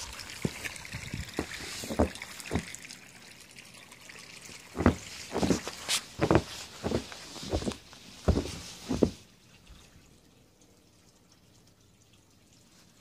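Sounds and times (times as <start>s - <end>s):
footsteps crunching through snow: 4.8s - 9.2s.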